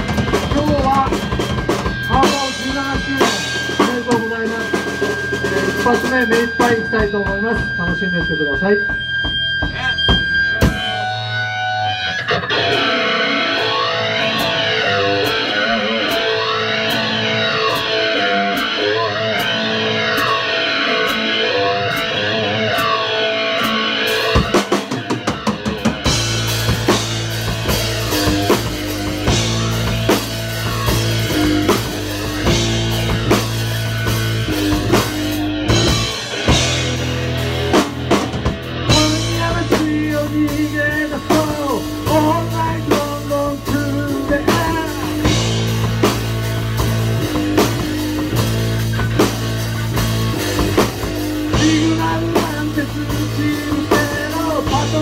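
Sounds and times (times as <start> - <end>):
drum fill: 0.0 - 11.5, 23.6 - 55.0
electric guitar chords with sweep: 0.0 - 55.0
rock band playing: 0.0 - 55.0.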